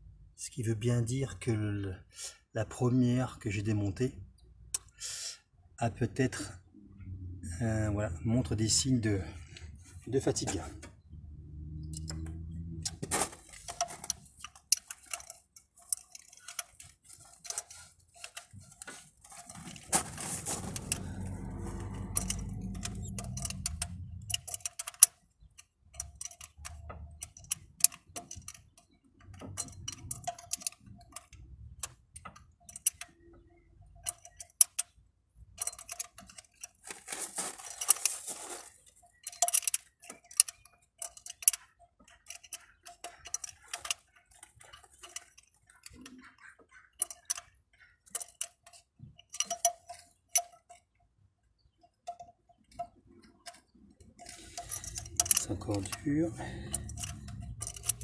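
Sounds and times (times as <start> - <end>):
ratchet wrench clicking: 20.7 - 28.7, 54.2 - 58.0
metal tool clinks: 54.2 - 58.0.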